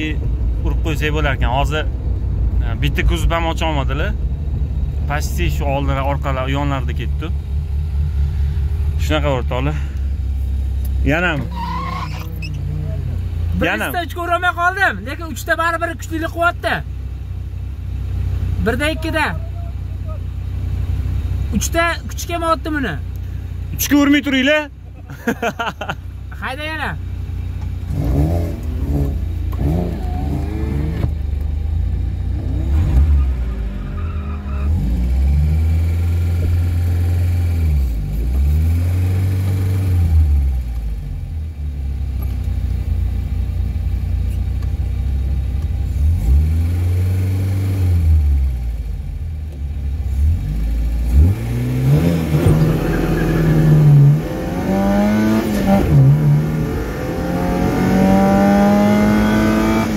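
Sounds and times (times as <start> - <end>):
car engines revving: 0.0 - 59.9
car engine accelerating hard: 27.8 - 42.5, 45.5 - 49.2, 49.9 - 59.9.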